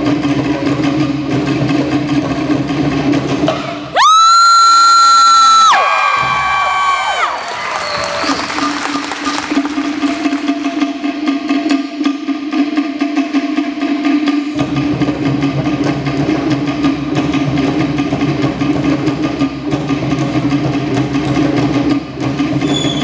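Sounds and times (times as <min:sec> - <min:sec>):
deep bass drum: 0:14.5 - 0:22.5.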